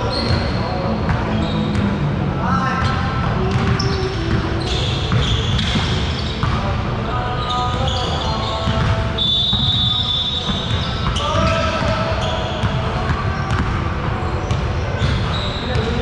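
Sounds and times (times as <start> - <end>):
sneaker squeaks on floor: 0.0 - 2.0, 2.8 - 16.0
basketballs bouncing on hardwood: 2.8 - 6.6, 8.6 - 13.8.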